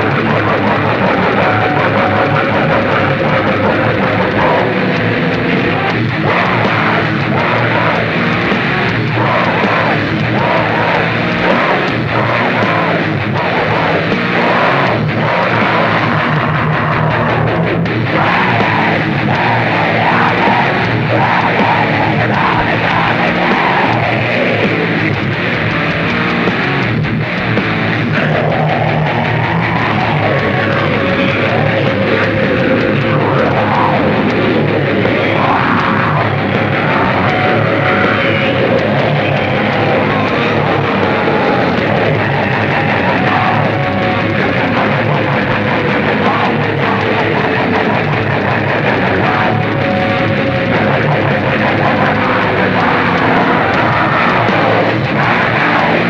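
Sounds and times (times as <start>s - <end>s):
distorted noise music: 0.0s - 56.0s
long held tone: 36.2s - 45.1s, 49.1s - 51.0s.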